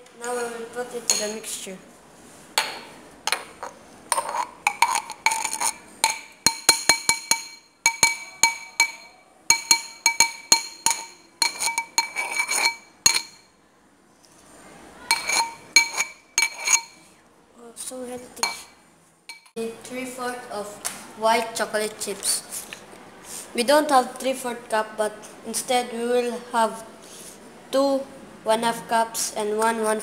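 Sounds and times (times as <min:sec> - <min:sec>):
metal utensil clinking in bowl: 0:04.1 - 0:13.4, 0:15.1 - 0:17.0.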